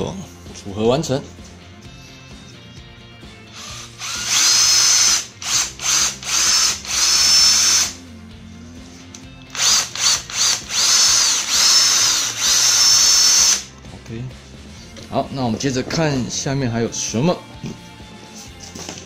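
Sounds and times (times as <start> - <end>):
impact driver driving screws: 3.5 - 8.0, 9.5 - 13.7.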